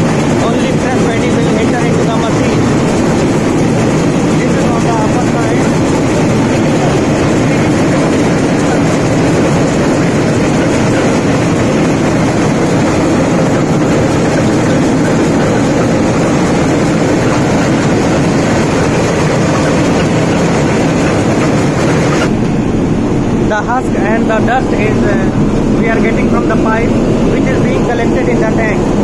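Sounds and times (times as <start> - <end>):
paddy rattling over vibrating sieve: 0.0 - 22.4
rice mill machine running: 0.0 - 29.0.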